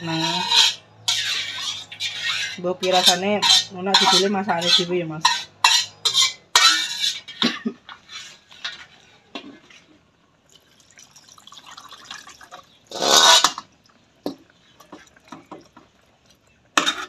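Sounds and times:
metal spatula clinking on pot: 0:00.2 - 0:07.4
broth pouring and splashing: 0:10.5 - 0:16.8.

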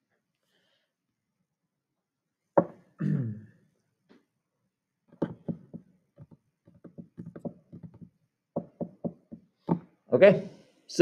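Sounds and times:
light irregular knocks and taps: 0:02.6 - 0:02.8, 0:05.1 - 0:10.0.

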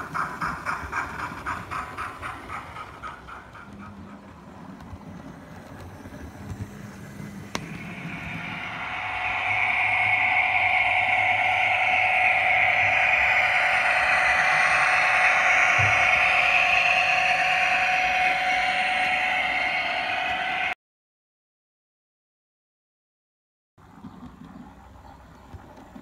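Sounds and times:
wheels running on track: 0:00.0 - 0:20.8.

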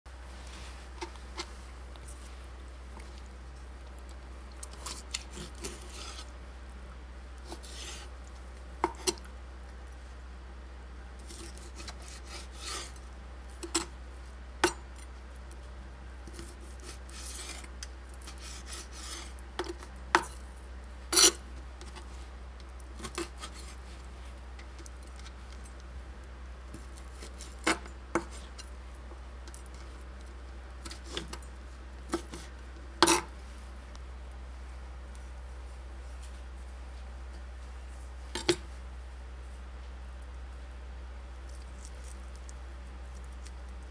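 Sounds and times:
knife slicing and scraping: 0:04.6 - 0:06.4, 0:07.4 - 0:08.2, 0:11.2 - 0:13.9, 0:16.3 - 0:20.4, 0:21.1 - 0:22.2, 0:23.0 - 0:24.0, 0:26.7 - 0:28.7, 0:30.8 - 0:31.5, 0:32.1 - 0:33.3.

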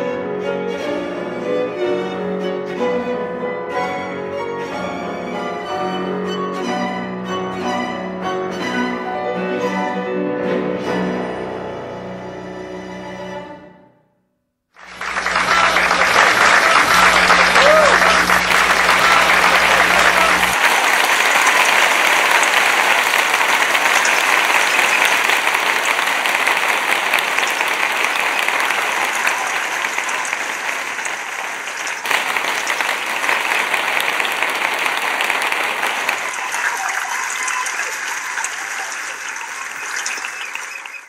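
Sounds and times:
audience applauding: 0:14.8 - 0:41.0.

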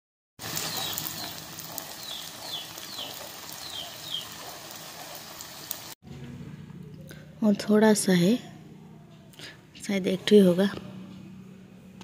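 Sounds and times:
batter sizzling in hot oil: 0:00.4 - 0:06.0
bird chirping: 0:00.6 - 0:04.4.

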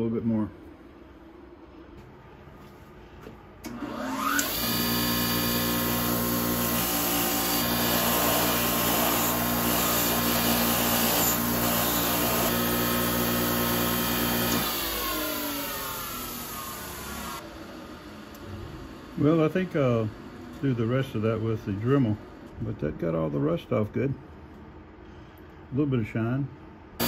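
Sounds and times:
bench grinder wire wheel running: 0:03.7 - 0:17.4.

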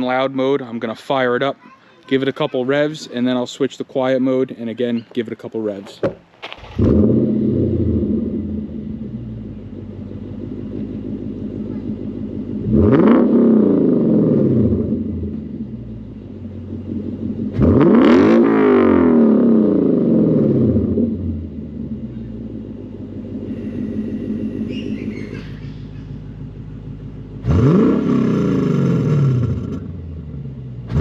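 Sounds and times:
car engine idling and revving: 0:06.4 - 0:31.0.

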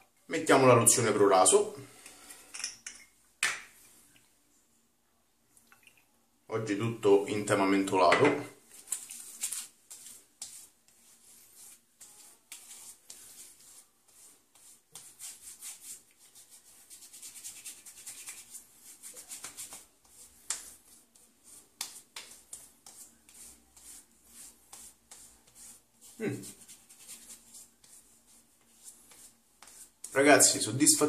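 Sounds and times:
hands patting wet skin: 0:08.7 - 0:30.5
hands rubbing skin: 0:08.7 - 0:31.0.

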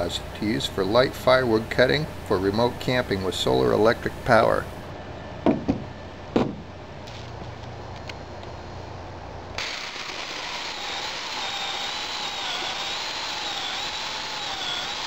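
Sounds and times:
electric chainsaw cutting log: 0:09.6 - 0:15.0.

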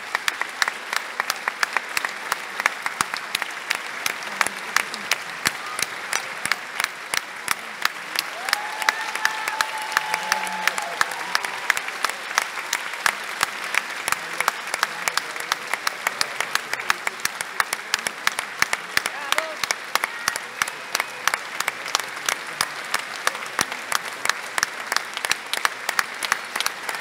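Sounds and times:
audience applauding: 0:00.0 - 0:27.0
long shout from audience: 0:08.1 - 0:13.1, 0:19.0 - 0:21.4.

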